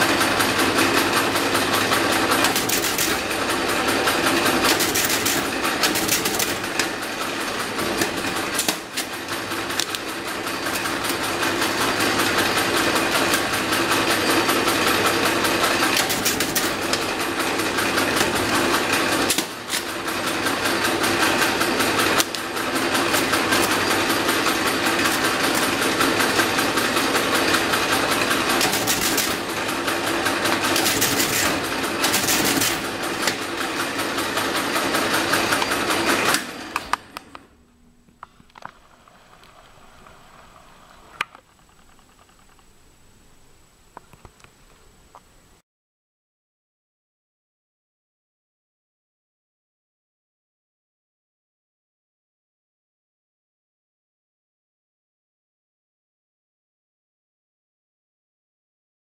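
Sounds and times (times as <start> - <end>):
mechanical calculator rattling clatter: 0.0 - 37.1.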